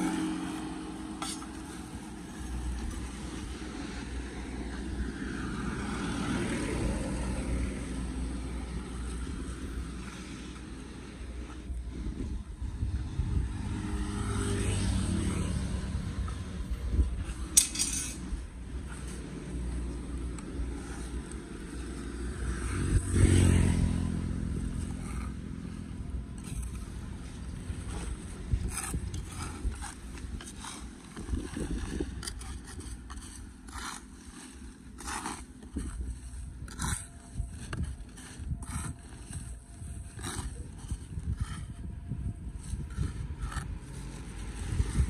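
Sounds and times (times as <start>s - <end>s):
vehicle passing by: 0.0s - 34.0s, 36.6s - 45.0s
low steady rumble: 24.1s - 45.0s.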